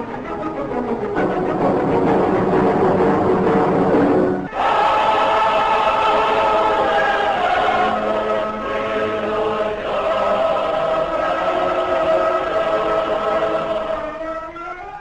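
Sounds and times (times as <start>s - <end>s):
choir singing held chords: 0.0s - 14.8s.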